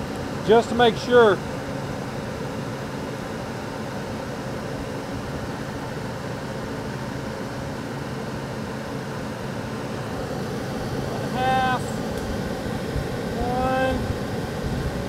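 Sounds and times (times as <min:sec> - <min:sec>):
wind on microphone: 0:12.9 - 0:15.0.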